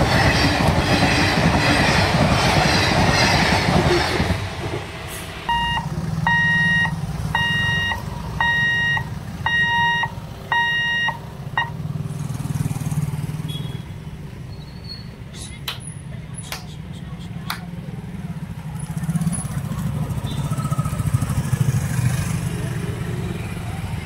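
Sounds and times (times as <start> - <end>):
train coaches clattering: 0.0 - 7.7
idling engines humming: 4.2 - 14.4, 15.2 - 24.0
electronic beeps: 5.5 - 11.8.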